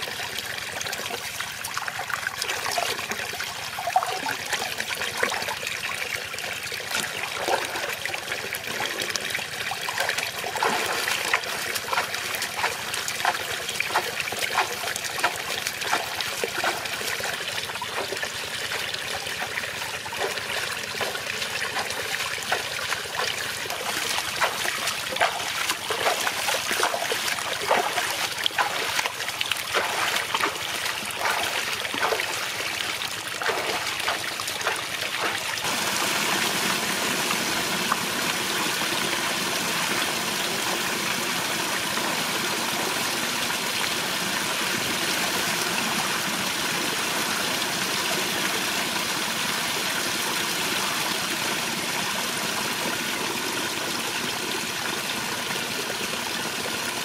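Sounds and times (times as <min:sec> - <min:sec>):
water sloshing and splashing: 0:00.0 - 0:39.4
small waterfall rushing: 0:00.0 - 0:57.0.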